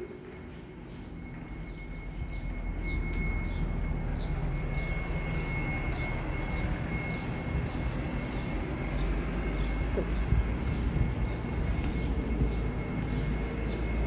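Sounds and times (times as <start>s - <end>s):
wind rumbling on microphone: 8.8s - 13.6s.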